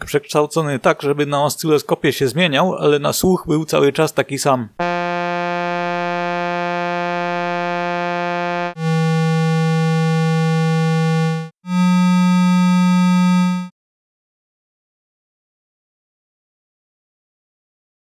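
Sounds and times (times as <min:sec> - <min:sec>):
low buzzy synthesised tone: 0:04.8 - 0:13.7.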